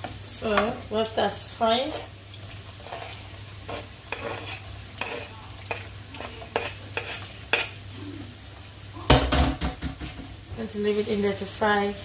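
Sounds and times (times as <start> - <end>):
onion sizzling in a pan: 0.0 - 12.0
wooden spoon knocking a pan: 9.1 - 10.4.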